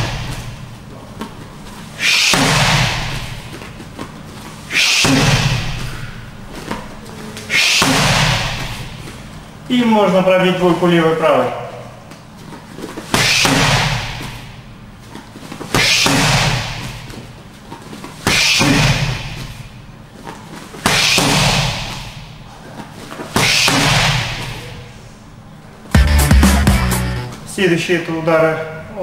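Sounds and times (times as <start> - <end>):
boxing gloves hitting focus mitts: 2.1 - 4.1, 4.8 - 7.0, 7.6 - 9.1, 12.8 - 14.6, 15.5 - 17.2, 20.2 - 22.3, 23.1 - 24.6.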